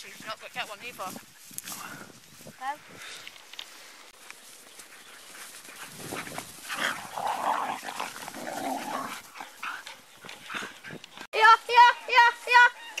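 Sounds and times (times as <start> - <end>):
dogs growling and scuffling: 4.8 - 11.3.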